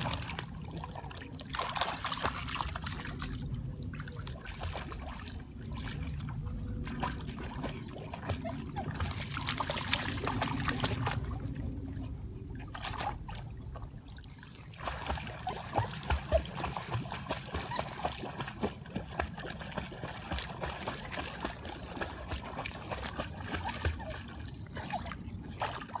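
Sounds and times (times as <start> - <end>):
water splashing: 0.0 - 26.0
dog whining: 7.8 - 9.4.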